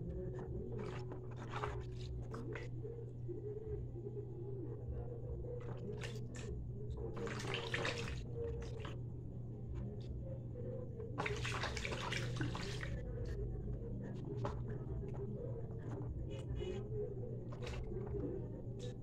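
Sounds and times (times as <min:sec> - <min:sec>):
water splashing into basin: 0:07.1 - 0:09.0, 0:11.2 - 0:13.0.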